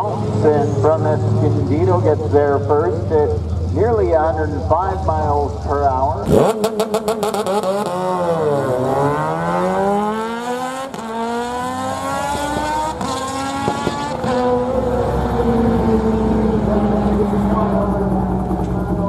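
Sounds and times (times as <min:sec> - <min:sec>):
motorbike and car accelerating: 0:00.0 - 0:19.0.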